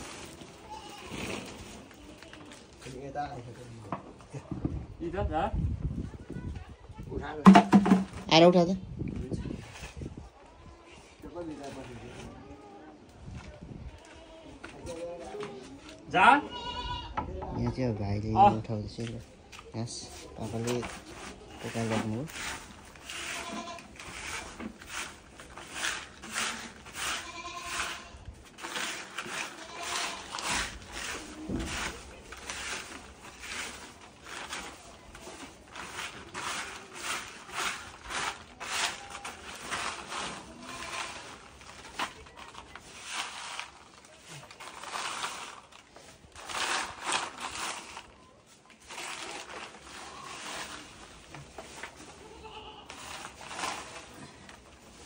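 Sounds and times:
goats bleating: 27.0s - 28.1s, 29.4s - 30.3s, 52.2s - 53.1s.

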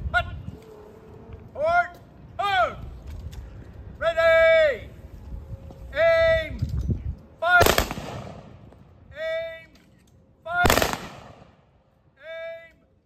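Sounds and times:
person shouting commands: 1.6s - 2.8s, 4.0s - 4.9s, 5.9s - 6.6s, 7.4s - 7.7s, 9.1s - 9.7s, 12.1s - 12.8s
rifle volleys with echo: 7.6s - 8.6s, 10.6s - 11.6s.

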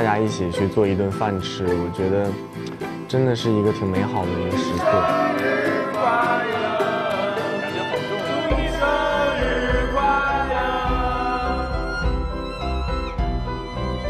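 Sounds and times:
song with singing over a beat: 4.6s - 12.7s
bass line: 8.5s - 14.0s.

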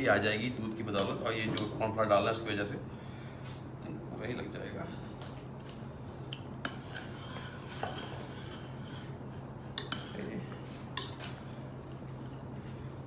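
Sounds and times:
metal utensil scraping saucepan: 6.6s - 9.2s.

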